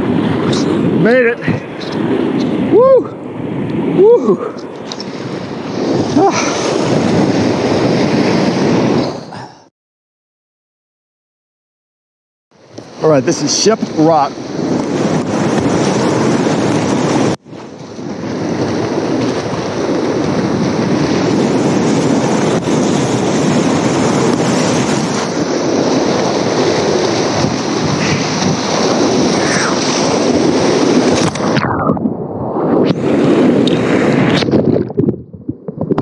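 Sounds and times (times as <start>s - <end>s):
wind on microphone: 0.0s - 9.7s, 12.6s - 36.0s
whitewater rushing: 24.7s - 31.3s.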